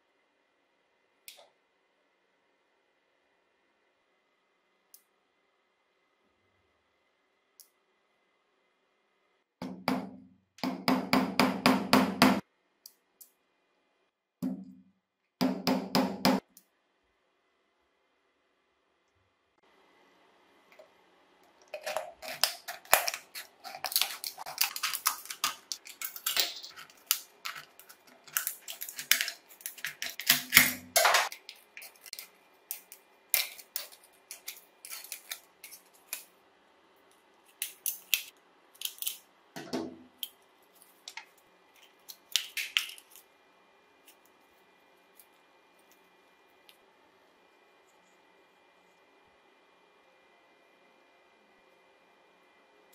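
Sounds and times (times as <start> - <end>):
scissors snipping metal can: 21.8 - 36.2.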